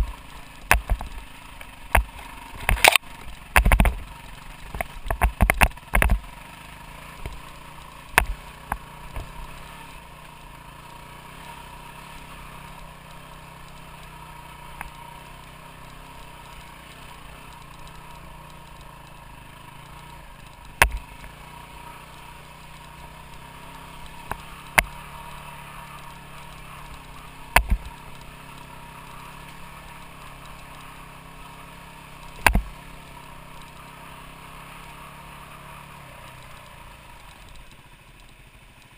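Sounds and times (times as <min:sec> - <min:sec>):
off-road motorcycle engine: 0:00.0 - 0:38.9
sharp knocks and clatters: 0:01.9 - 0:04.0, 0:04.7 - 0:06.2.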